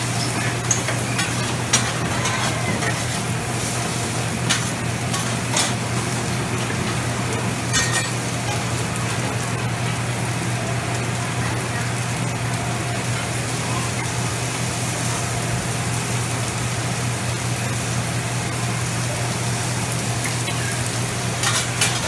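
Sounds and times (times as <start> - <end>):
food sizzling on griddle: 0.0 - 22.0
metal spatulas scraping steel: 0.6 - 3.2.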